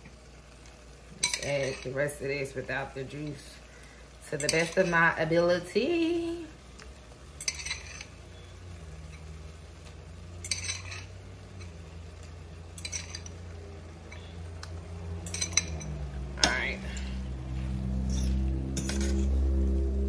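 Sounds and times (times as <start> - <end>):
utensil scraping a pan: 7.4 - 14.4, 15.1 - 19.7.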